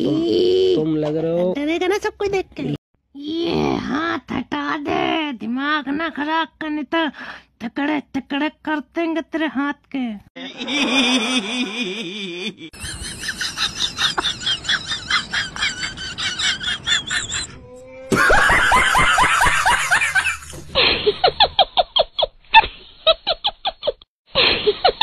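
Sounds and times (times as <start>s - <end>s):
person giggling: 10.4s - 22.7s
high laugh: 10.4s - 25.0s.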